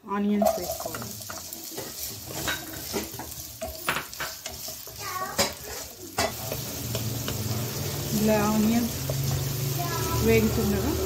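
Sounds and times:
onions sizzling in hot oil: 0:00.0 - 0:11.0
wooden spatula scraping a pan: 0:00.2 - 0:11.0
spatula knocking on pan: 0:00.4 - 0:07.6.

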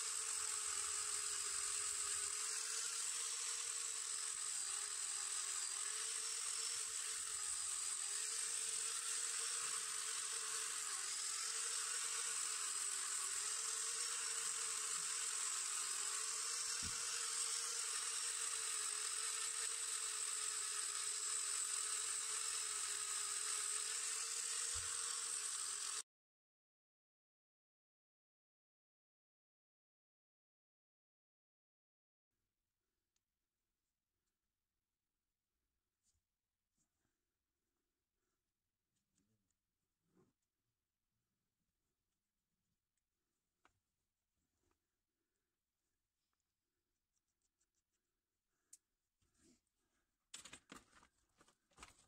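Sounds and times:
angle grinder high whine: 0:00.0 - 0:26.0.

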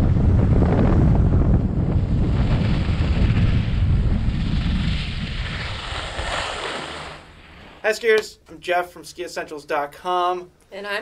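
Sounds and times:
wind buffeting microphone: 0:00.0 - 0:07.6
skis sliding over snow: 0:02.1 - 0:08.0.

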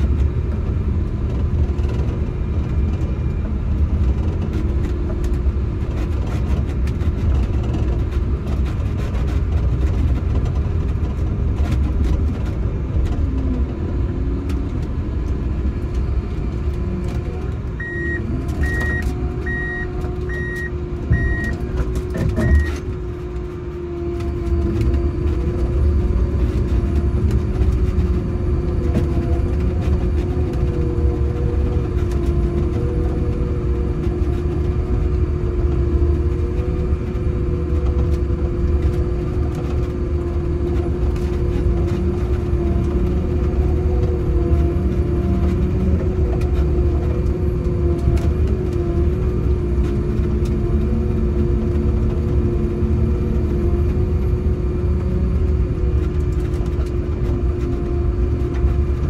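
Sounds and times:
diesel engine running under load: 0:00.0 - 0:59.0
reversing beeper: 0:17.8 - 0:21.6, 0:22.4 - 0:22.8.

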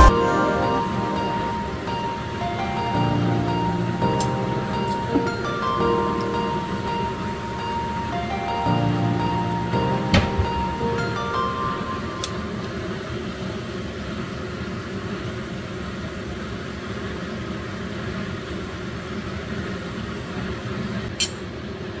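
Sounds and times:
low machine hum: 0:00.0 - 0:21.0.

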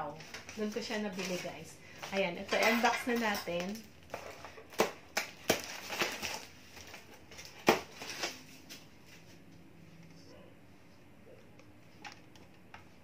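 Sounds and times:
paper crackling: 0:03.6 - 0:09.3.

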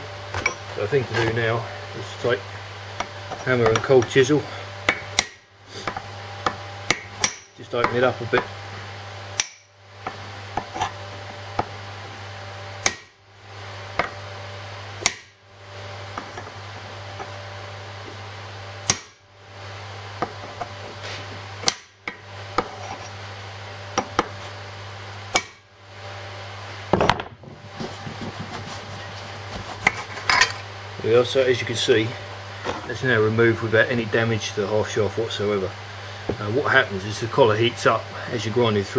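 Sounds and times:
hammer striking cold chisel on steel: 0:06.5 - 0:08.5, 0:09.4 - 0:09.7, 0:18.9 - 0:19.2, 0:25.3 - 0:25.6.

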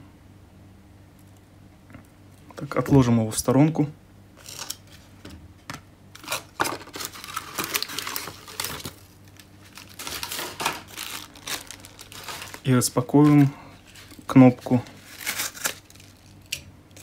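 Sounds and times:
plastic bag crinkling: 0:06.2 - 0:16.7
foam trays and box shuffled: 0:06.6 - 0:16.2.

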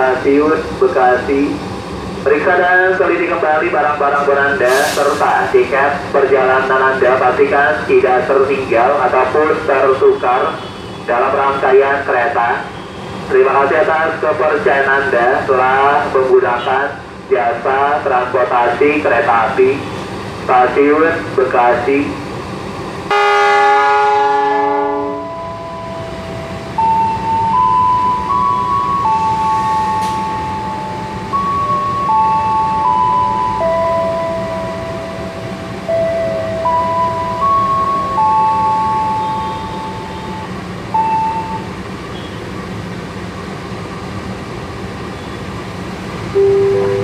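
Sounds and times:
diesel locomotive idling: 0:00.0 - 0:47.0
passing train rumble: 0:00.0 - 0:47.0
locomotive horn chord: 0:23.1 - 0:25.8, 0:46.4 - 0:47.0
two-note tone: 0:35.9 - 0:41.7, 0:46.4 - 0:47.0
brief single tone: 0:38.9 - 0:40.4, 0:41.0 - 0:42.4, 0:46.4 - 0:47.0
held tones stepping in pitch: 0:46.4 - 0:47.0.

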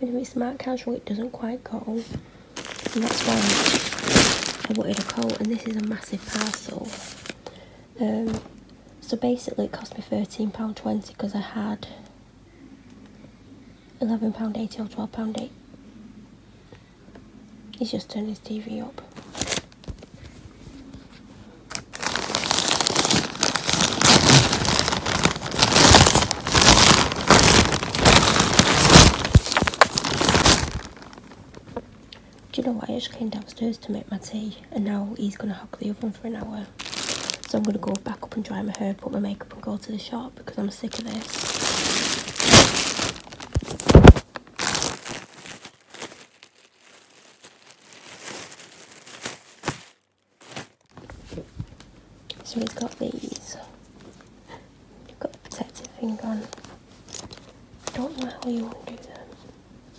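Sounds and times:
plastic bag crinkling: 0:02.6 - 0:07.5, 0:19.2 - 0:20.0, 0:21.7 - 0:31.8, 0:36.7 - 0:38.2, 0:40.8 - 0:50.9, 0:56.2 - 0:58.7.

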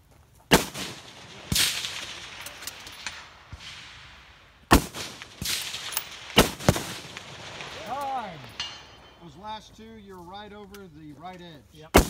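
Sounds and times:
echoing cracks: 0:00.5 - 0:09.3
rifle shots: 0:00.5 - 0:09.3.

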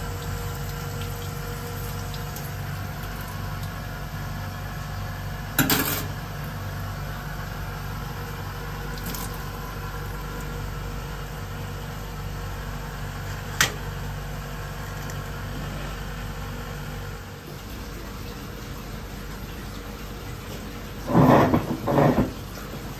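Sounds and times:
low mechanical hum: 0:00.0 - 0:22.9
clatter against steel sink: 0:05.6 - 0:06.2, 0:21.0 - 0:22.9.

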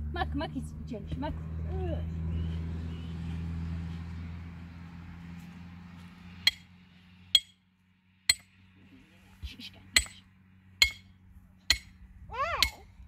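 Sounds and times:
sharp metallic clinks: 0:06.5 - 0:06.7, 0:08.3 - 0:08.6, 0:10.8 - 0:11.1
low steady hum: 0:08.3 - 0:13.0.

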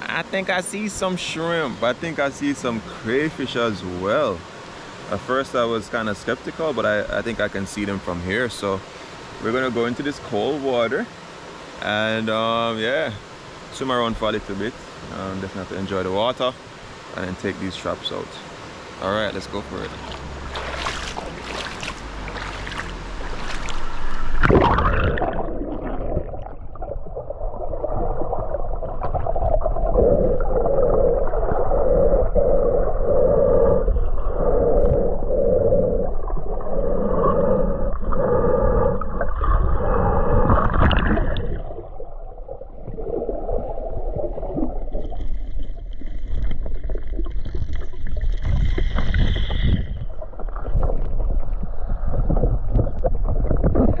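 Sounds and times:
muffled underwater rushing: 0:19.4 - 0:54.0
swimmer splashing into water: 0:20.0 - 0:25.4.

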